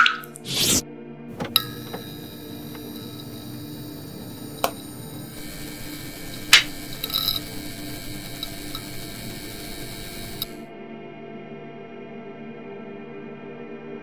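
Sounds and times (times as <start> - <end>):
sharp click: 0.0 - 0.8, 1.4 - 10.6
hum: 0.0 - 10.7
mechanical whirring and rattling: 0.4 - 10.6
small crackles: 1.5 - 10.6.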